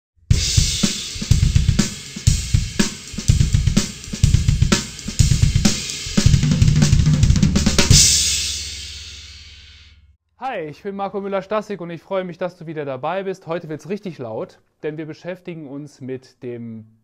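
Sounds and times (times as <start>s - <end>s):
rapid double bass drum: 0.3s - 9.5s
cymbal wash: 7.9s - 10.0s.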